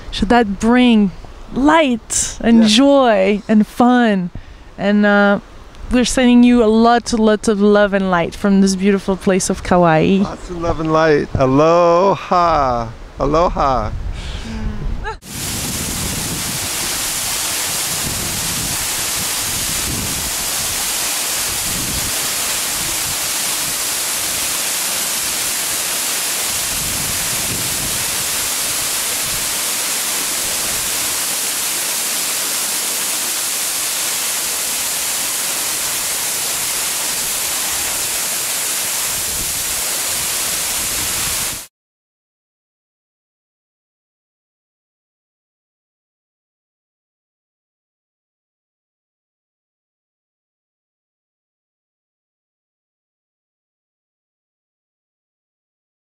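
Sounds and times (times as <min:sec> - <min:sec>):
waterfall pouring into pool: 0:15.2 - 0:41.7.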